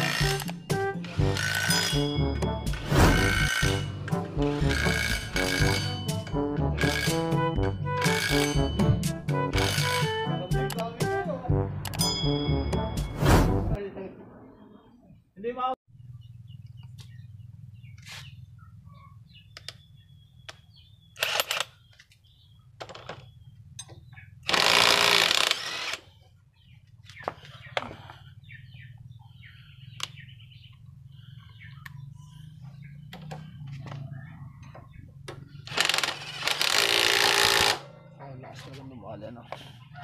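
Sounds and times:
impact wrench hammering: 4.6s - 7.3s.

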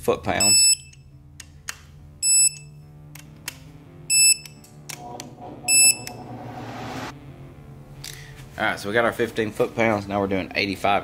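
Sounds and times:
torque wrench beeping: 4.1s - 4.6s.

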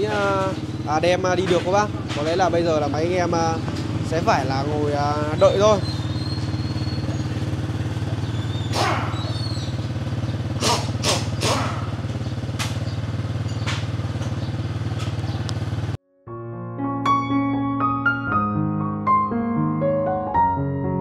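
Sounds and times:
motorcycle engine idling: 0.0s - 16.0s
piano music: 16.0s - 21.0s.

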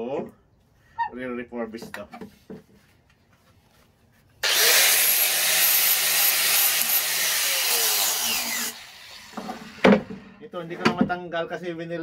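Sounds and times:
angle grinder grinding metal: 4.4s - 9.9s.

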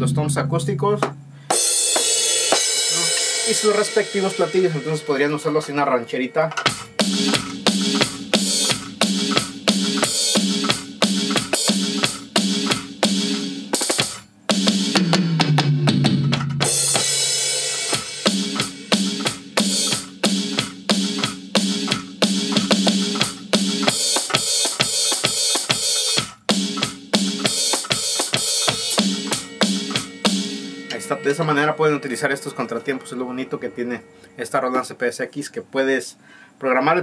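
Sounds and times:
drumsticks striking pad: 0.0s - 5.4s
cymbal crash: 0.0s - 6.0s, 6.6s - 8.9s, 28.4s - 34.4s
electronic drum beat: 0.0s - 34.1s.

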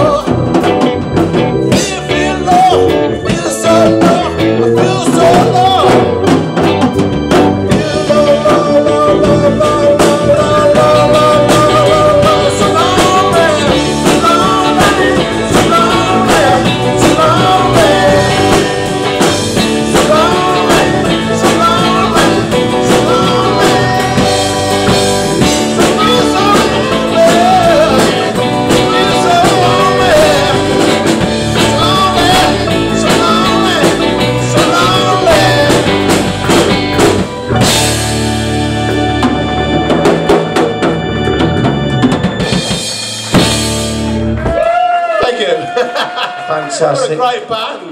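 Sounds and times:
man singing: 0.0s - 37.0s
keyboard: 0.0s - 44.5s
drum kit: 0.0s - 46.5s
electric guitars: 0.0s - 47.0s.

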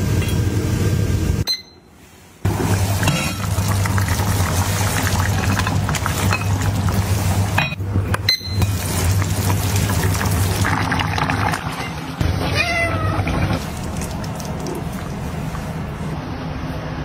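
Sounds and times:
stew bubbling in a pot: 2.5s - 7.6s, 8.6s - 12.3s, 13.1s - 16.0s.

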